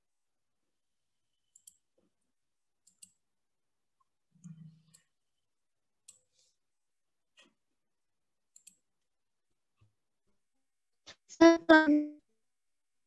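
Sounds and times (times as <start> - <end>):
person's voice: 11.1 - 12.2.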